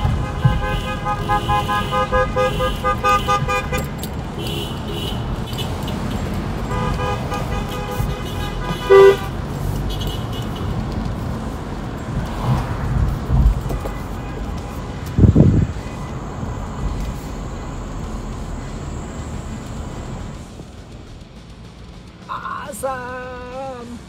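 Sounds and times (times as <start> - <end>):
loud horn blast: 0.0 - 5.8, 6.6 - 10.8
car horns honking: 0.0 - 10.9, 13.4 - 20.2
car rumbling on road: 0.0 - 24.0.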